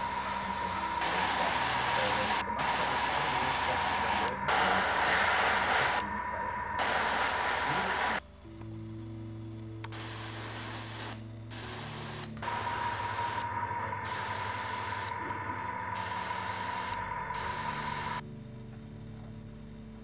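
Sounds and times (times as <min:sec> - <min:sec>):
spray paint hissing: 0:00.0 - 0:06.1, 0:06.8 - 0:08.2, 0:09.9 - 0:18.2
steady low hum: 0:00.0 - 0:20.0.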